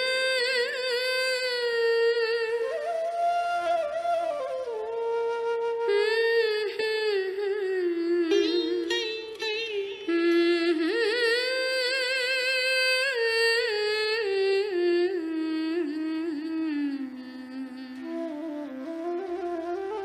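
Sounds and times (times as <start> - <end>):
person singing long ornamented notes: 5.9 - 18.2.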